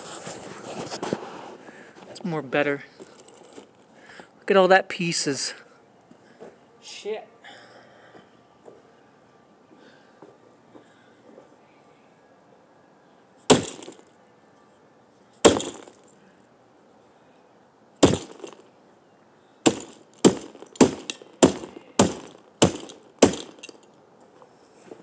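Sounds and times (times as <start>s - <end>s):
brick slamming on plastic toy: 13.5s - 14.0s, 15.4s - 16.0s, 18.0s - 18.6s, 19.7s - 23.7s.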